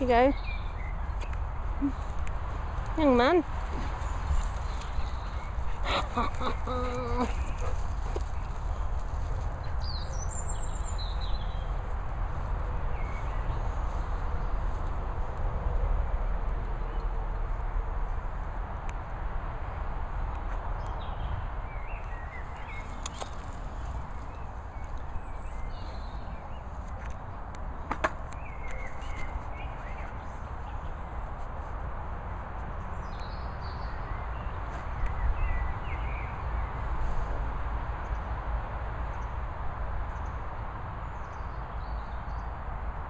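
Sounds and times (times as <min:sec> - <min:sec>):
bird chirping: 0:00.0 - 0:02.1, 0:09.6 - 0:11.8
outdoor rumble and hiss: 0:00.0 - 0:43.0.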